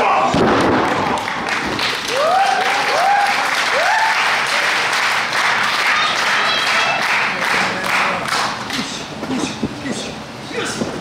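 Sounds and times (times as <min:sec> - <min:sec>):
crowd applauding: 0:00.6 - 0:08.8.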